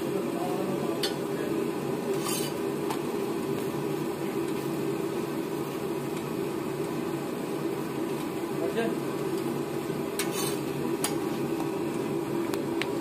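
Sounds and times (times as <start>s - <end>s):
metal spatula scraping griddle: 2.1s - 2.6s, 10.2s - 10.7s.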